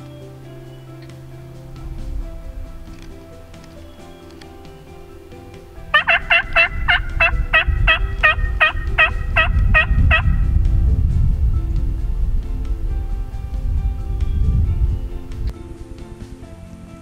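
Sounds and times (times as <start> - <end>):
wild turkey calling: 5.9 - 10.3.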